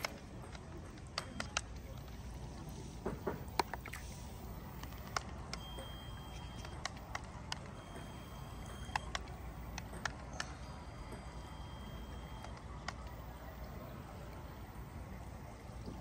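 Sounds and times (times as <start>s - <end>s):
sharp clicks: 0.0s - 2.0s, 4.6s - 13.4s
toy boat motor whine: 4.6s - 15.6s.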